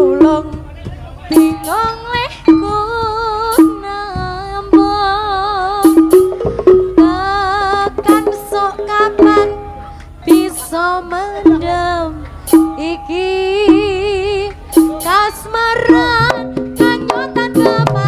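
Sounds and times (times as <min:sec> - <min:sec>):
sharp drum strokes: 0:00.0 - 0:10.8, 0:12.4 - 0:13.0, 0:13.6 - 0:18.0
wavering high melody: 0:01.3 - 0:04.0.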